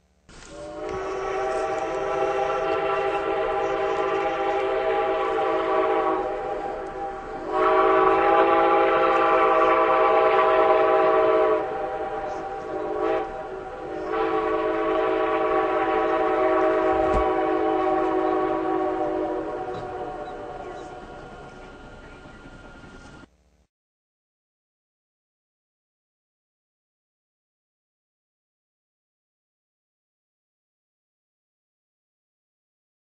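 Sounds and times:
train horn blasts: 0.4s - 23.3s.

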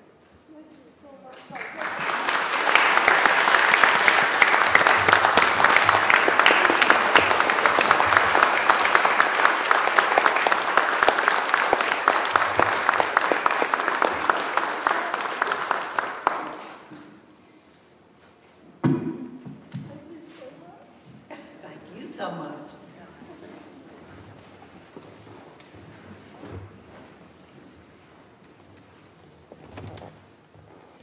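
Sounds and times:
congregation applauding: 1.4s - 17.0s.

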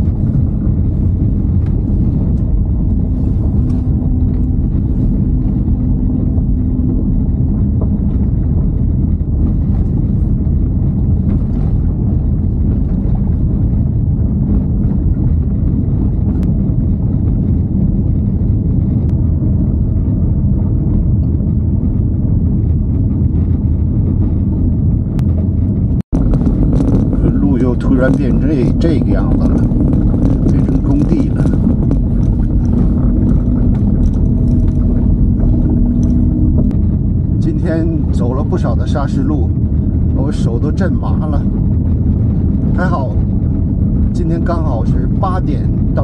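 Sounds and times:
car engine: 0.0s - 46.0s
tyres rumbling on gravel: 22.7s - 46.0s.

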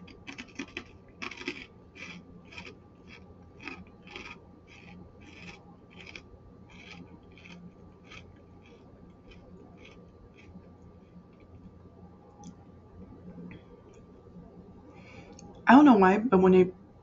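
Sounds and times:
chewing crunchy rice cracker: 0.0s - 11.6s.

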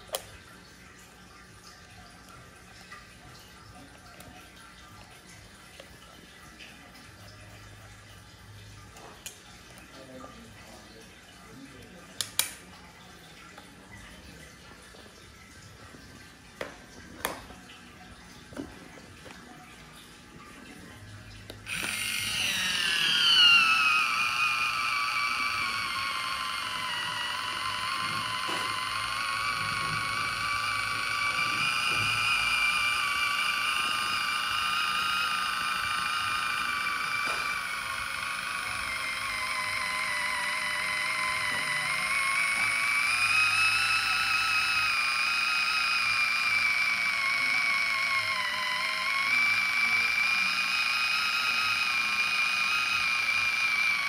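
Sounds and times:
electric can opener whining: 0.0s - 6.0s, 11.7s - 12.7s, 16.6s - 17.6s, 21.1s - 54.0s.

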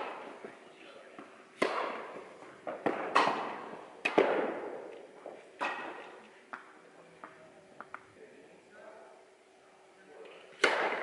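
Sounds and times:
tennis ball bouncing: 1.2s - 5.0s, 5.6s - 8.0s
tennis rackets striking ball: 1.2s - 8.0s, 10.6s - 11.0s.

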